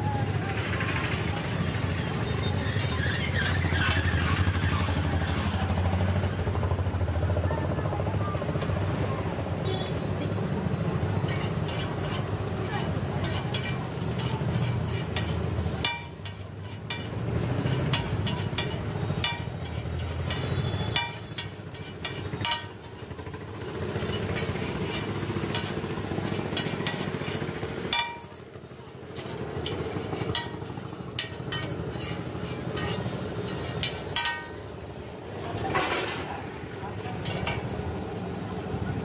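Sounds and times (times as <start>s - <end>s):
noodles sizzling on griddle: 0.0s - 5.8s, 8.6s - 39.0s
utensils scraping griddle: 11.0s - 34.8s, 35.4s - 38.0s.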